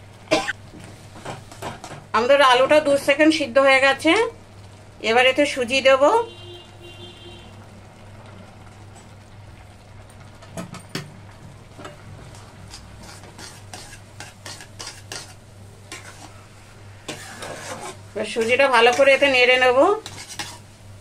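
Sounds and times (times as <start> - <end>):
metal spatula scraping a pan: 12.3 - 20.7.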